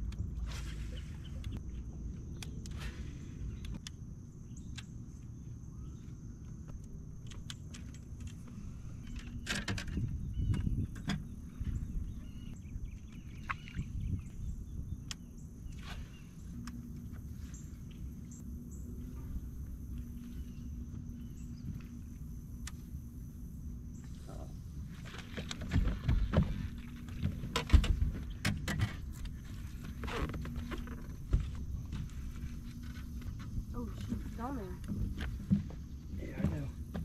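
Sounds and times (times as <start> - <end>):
low steady hum: 0.0 - 37.0
open-air rumble: 0.0 - 37.0
fishing gear clicks and knocks: 6.4 - 11.3
faint high whine: 15.4 - 28.2.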